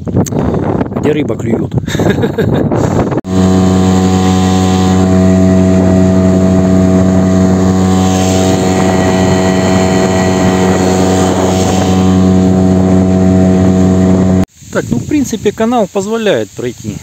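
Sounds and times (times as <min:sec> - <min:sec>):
outboard motor droning: 0:03.3 - 0:14.5
water and air hiss: 0:14.5 - 0:17.0.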